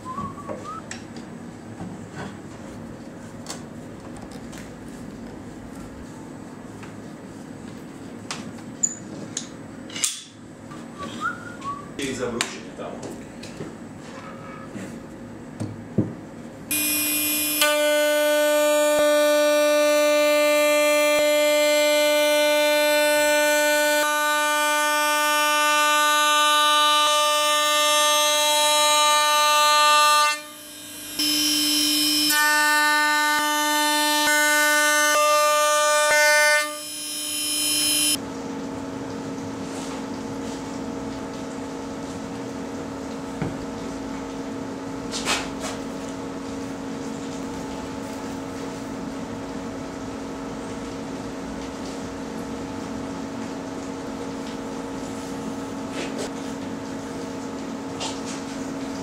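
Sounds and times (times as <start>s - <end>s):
machine hum: 15.0s - 45.1s
router spindle high whine: 16.7s - 38.2s.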